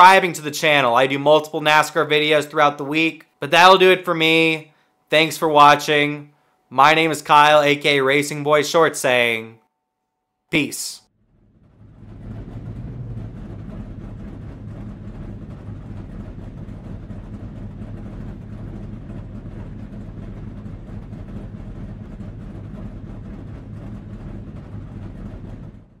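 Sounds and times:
vehicle engine rumble: 0:11.1 - 0:26.0.

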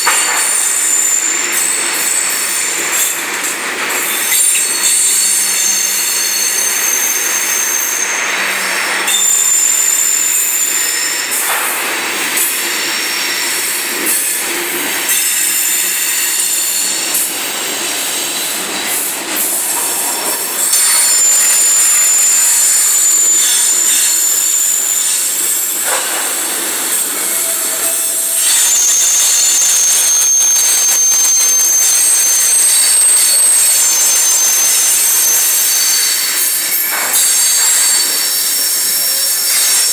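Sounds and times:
train wheels screeching: 0:00.0 - 0:39.9.

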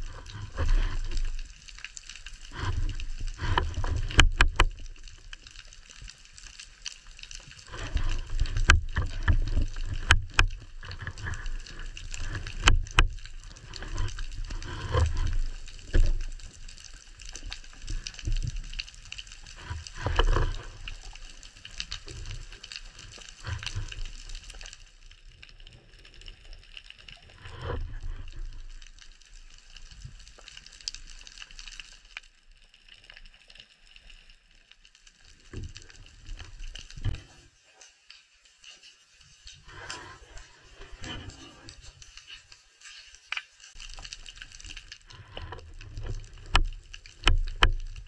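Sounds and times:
underwater water rushing: 0:00.0 - 0:24.7, 0:43.8 - 0:48.0.

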